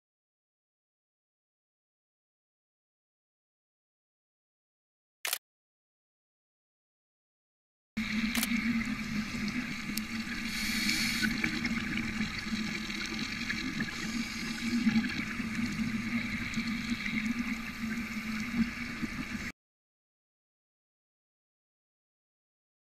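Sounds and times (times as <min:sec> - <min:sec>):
underwater rushing: 0:08.0 - 0:19.5
hissing surges: 0:08.6 - 0:12.5.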